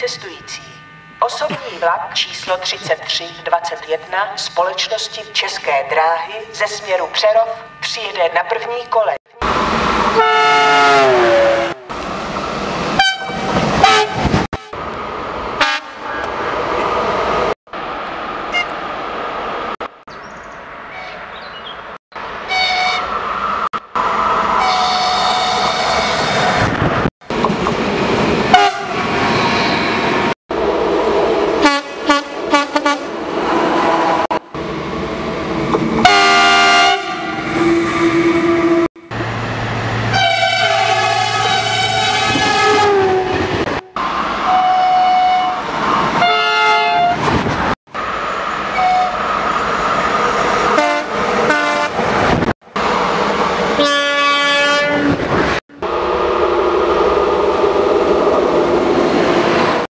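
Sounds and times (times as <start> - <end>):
train rushing and rumbling: 0.0 - 59.9
train horn blasts: 10.2 - 11.9, 13.0 - 14.8, 15.6 - 16.1, 22.5 - 23.1, 24.6 - 26.2, 28.5 - 28.9, 31.6 - 33.1, 36.0 - 38.9, 40.1 - 45.6, 46.2 - 47.2, 48.8 - 49.2, 50.7 - 52.0, 53.8 - 55.2.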